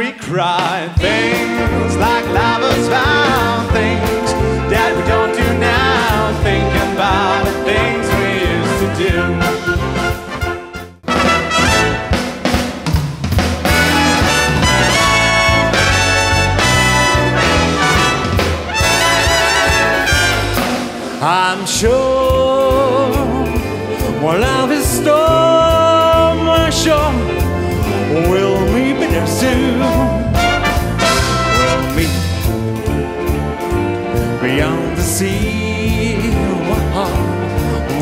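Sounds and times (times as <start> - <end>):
man singing into a microphone: 0.0 - 9.4, 21.2 - 30.3, 31.3 - 32.7, 34.4 - 38.0
wind band playing swing: 1.0 - 38.0.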